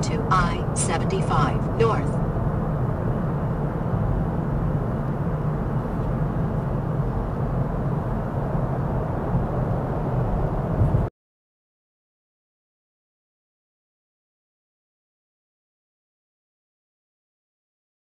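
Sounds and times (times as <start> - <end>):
car cabin road noise: 0.0 - 11.1
faint hum: 0.0 - 11.1.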